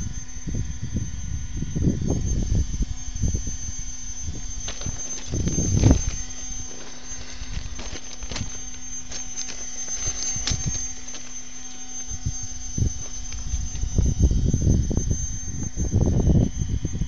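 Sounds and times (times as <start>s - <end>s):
faint high whine: 0.0s - 17.0s
steady low hum: 0.0s - 17.0s
footsteps crunching on ballast: 4.1s - 14.5s.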